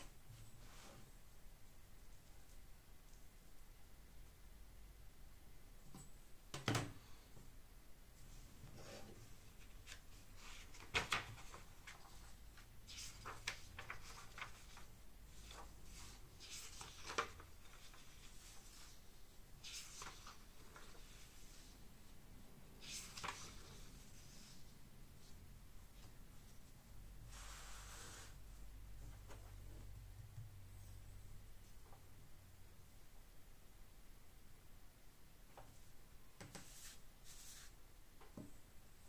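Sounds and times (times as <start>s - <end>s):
paper rustling and sliding: 8.7s - 21.7s, 22.8s - 25.3s, 27.3s - 28.4s, 36.5s - 37.8s.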